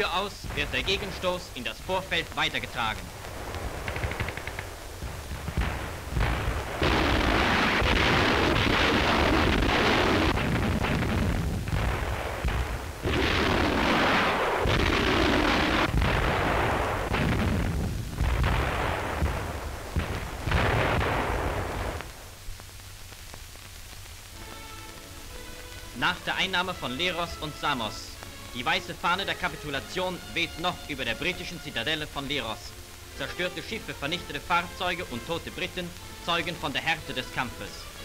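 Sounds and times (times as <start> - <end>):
artillery and gunfire explosions: 0.0 - 22.4.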